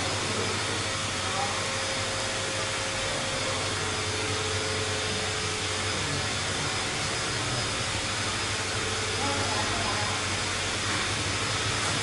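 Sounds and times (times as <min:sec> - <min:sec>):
electric air blower running: 0:00.0 - 0:12.0.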